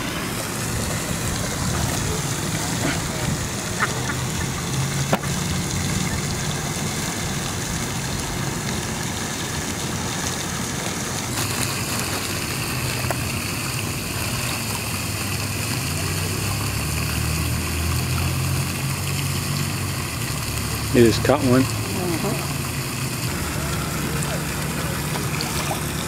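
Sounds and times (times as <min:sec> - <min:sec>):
steady rushing noise: 0:00.0 - 0:08.4.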